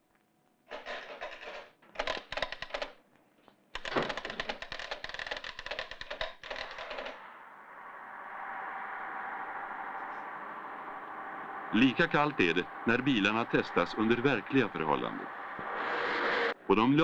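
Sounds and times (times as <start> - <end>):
rapid mechanical clicking and rattling: 0.7 - 3.0, 3.8 - 7.2
steady rushing noise: 7.1 - 17.0.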